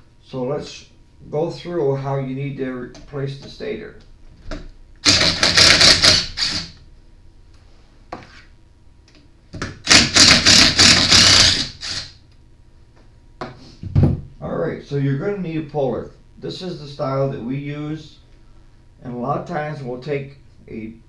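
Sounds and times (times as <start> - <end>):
impact driver hammering: 5.0 - 6.6, 9.8 - 11.8.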